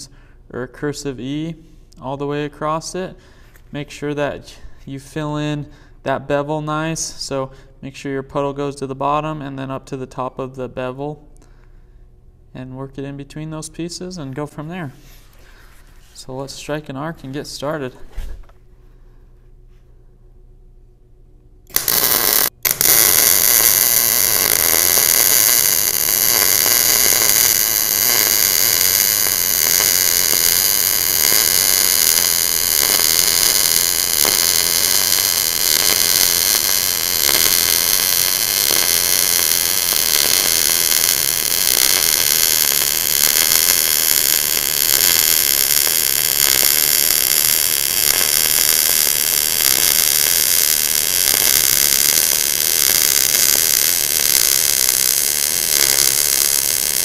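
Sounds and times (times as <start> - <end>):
welding arc: 21.7 - 57.0.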